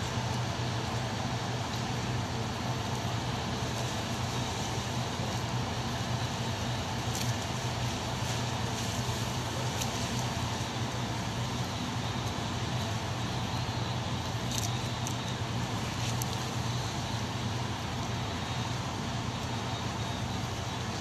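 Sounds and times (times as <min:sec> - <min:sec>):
harbour noise: 0:00.0 - 0:21.0
ship engines droning: 0:00.0 - 0:21.0.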